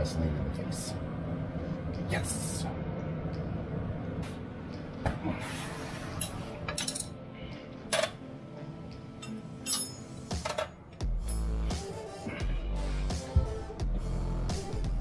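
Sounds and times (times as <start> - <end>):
hand tools clinking against metal: 9.2 - 11.4.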